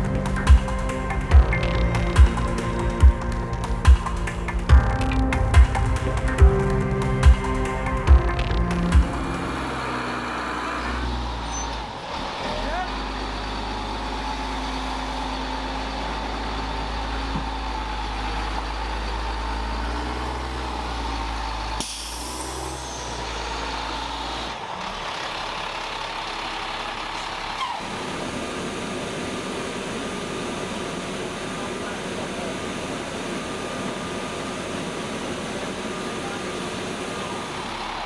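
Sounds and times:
truck diesel engine running: 0.0 - 38.0
air brake hiss: 21.8 - 23.2.

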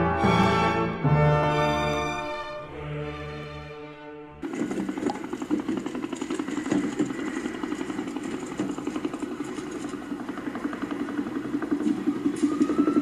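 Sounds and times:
engine running steadily: 4.4 - 13.0.

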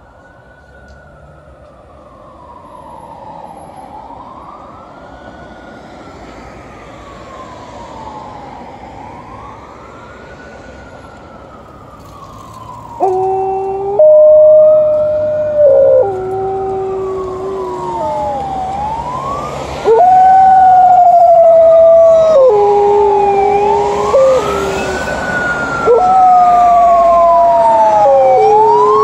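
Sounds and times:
siren wailing: 0.5 - 29.0
dog howling: 13.0 - 19.0, 19.8 - 25.1, 25.8 - 29.0.

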